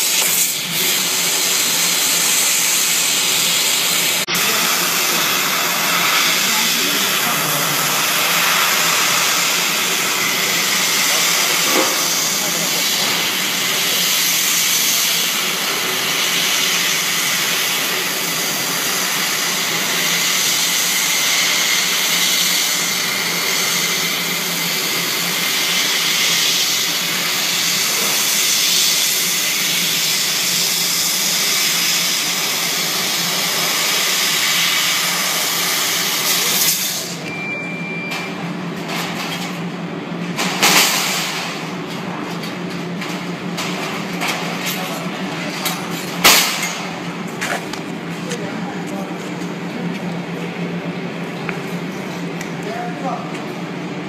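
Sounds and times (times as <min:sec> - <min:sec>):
laser cutter gas hiss: 0:00.0 - 0:37.3
low machine hum: 0:29.1 - 0:54.0
steady high tone: 0:37.1 - 0:38.5.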